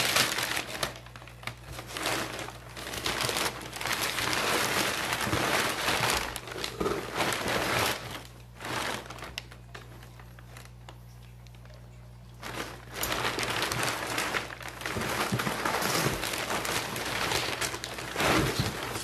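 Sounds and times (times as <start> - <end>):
packing paper crinkling: 0.0 - 19.0.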